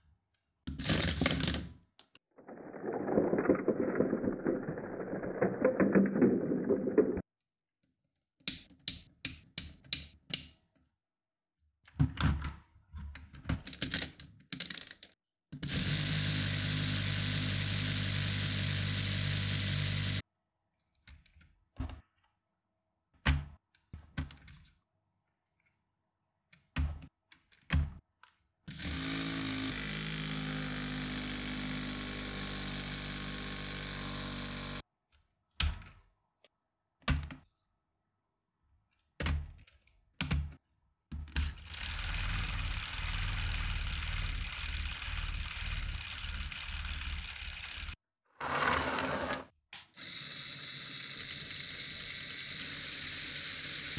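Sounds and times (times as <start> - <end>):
plastic parts clicking and knocking: 11.9 - 15.2, 23.2 - 24.8, 26.5 - 28.5, 38.9 - 41.8.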